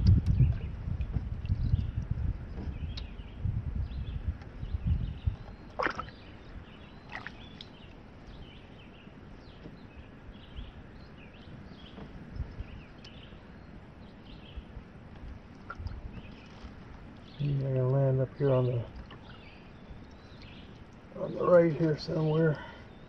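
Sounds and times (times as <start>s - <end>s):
low thuds: 0.0s - 6.1s
birds singing: 0.0s - 23.0s.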